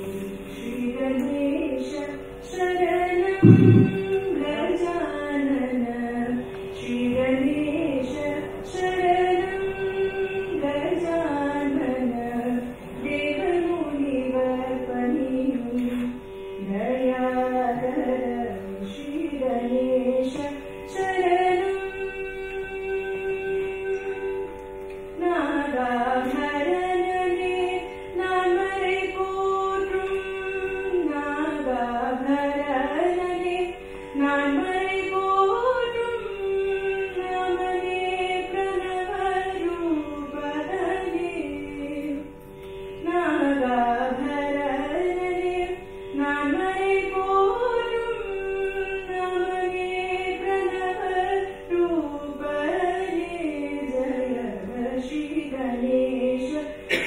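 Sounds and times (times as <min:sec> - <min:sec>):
woman singing devotional song: 0:00.0 - 0:57.0
steady drone: 0:03.4 - 0:04.4.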